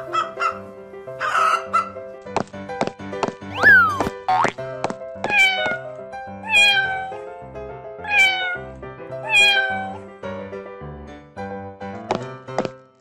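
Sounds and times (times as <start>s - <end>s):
cartoon background music: 0.0s - 13.0s
cat meowing: 5.3s - 5.8s, 6.4s - 7.2s, 8.0s - 10.0s.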